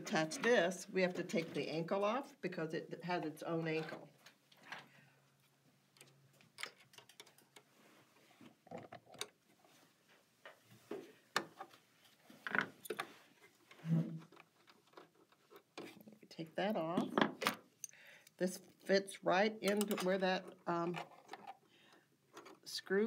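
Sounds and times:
metal clicks and scrapes: 0:06.0 - 0:07.7.

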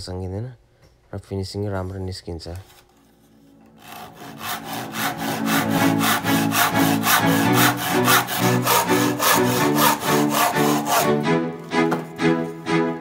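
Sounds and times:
hand saw cutting wood: 0:03.8 - 0:12.0.

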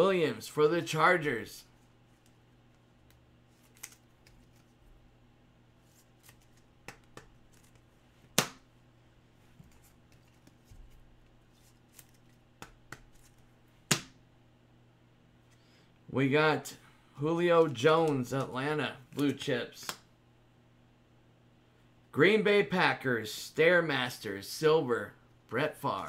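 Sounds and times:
trading cards clicking and tapping: 0:06.2 - 0:08.6, 0:12.0 - 0:14.1.

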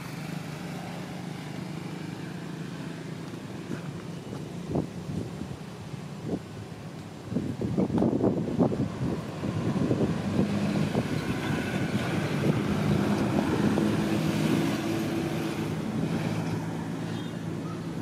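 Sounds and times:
wind buffeting microphone: 0:04.2 - 0:16.8.

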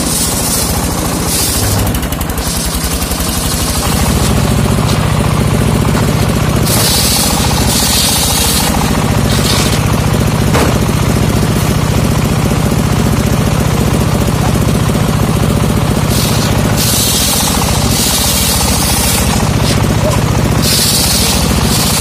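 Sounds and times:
saw blade cutting wood hiss: 0:00.0 - 0:10.2, 0:15.9 - 0:22.0
table saw motor running: 0:00.0 - 0:22.0.

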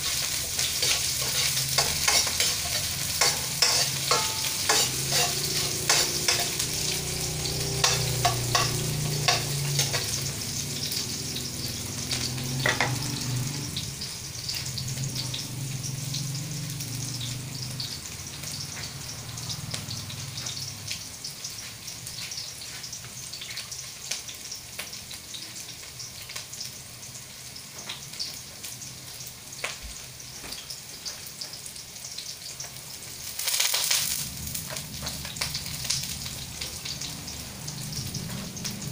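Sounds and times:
spatula scraping a pan: 0:00.0 - 0:11.0
food sizzling in a wok: 0:00.0 - 0:38.9.

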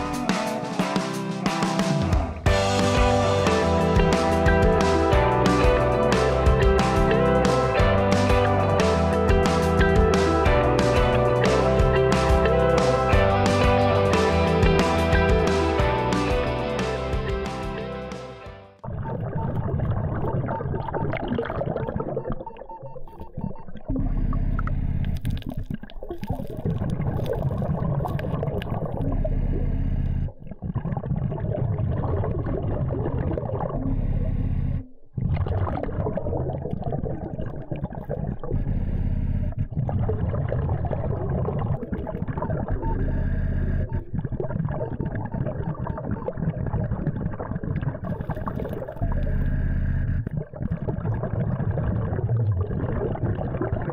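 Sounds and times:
bubbles gurgling: 0:18.8 - 0:34.5, 0:35.1 - 0:53.9
underwater rumble: 0:18.8 - 0:53.9.

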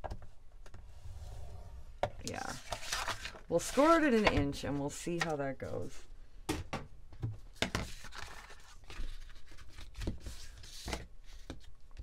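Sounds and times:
paper rustling and crinkling: 0:02.4 - 0:04.5, 0:07.6 - 0:12.0.

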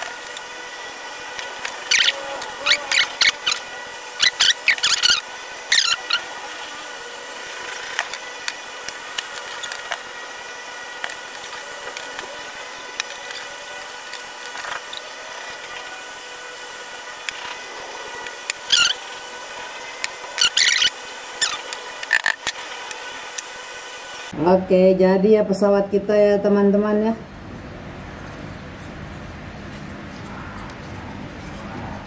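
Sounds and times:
steady hum: 0:00.0 - 0:32.0
wood squeaking against wood: 0:01.4 - 0:06.8, 0:18.6 - 0:19.0, 0:20.3 - 0:22.5.

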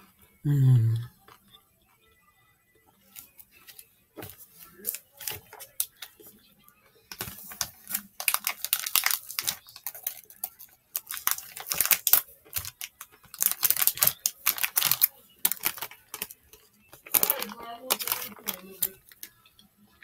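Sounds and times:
chewing crunchy chocolate: 0:07.1 - 0:19.3
foil wrapper crinkling: 0:07.1 - 0:19.3.

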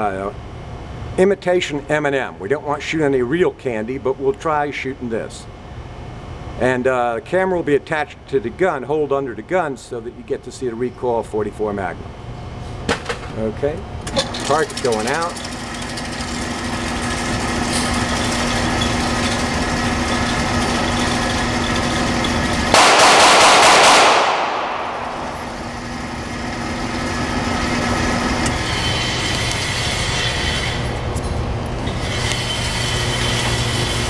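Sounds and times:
electric motor hum and whine: 0:00.0 - 0:22.8, 0:24.3 - 0:34.0
loud bang: 0:22.7 - 0:26.4.

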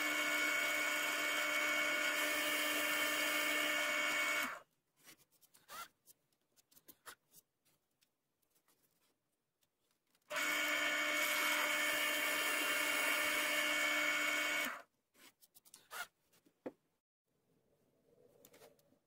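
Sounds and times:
drill press boring into wood: 0:00.0 - 0:04.6, 0:10.3 - 0:14.8.

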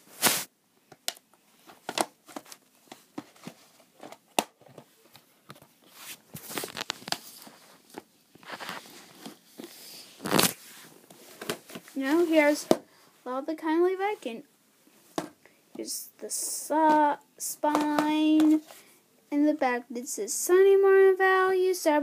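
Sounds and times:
plastic cases rustling: 0:00.2 - 0:12.9, 0:17.7 - 0:18.8
plastic cases clicking and knocking: 0:00.9 - 0:04.9.

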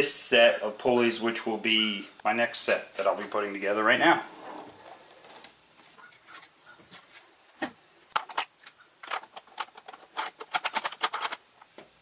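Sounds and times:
metal hardware clinking: 0:08.2 - 0:11.4.

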